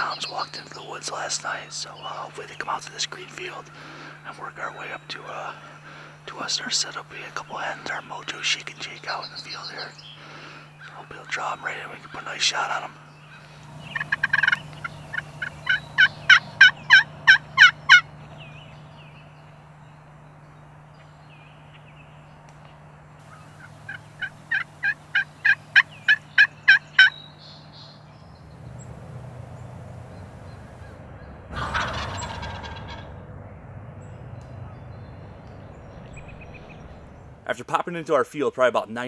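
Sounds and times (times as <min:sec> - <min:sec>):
turkey yelping: 0:13.3 - 0:18.3, 0:23.2 - 0:27.2, 0:31.6 - 0:33.1.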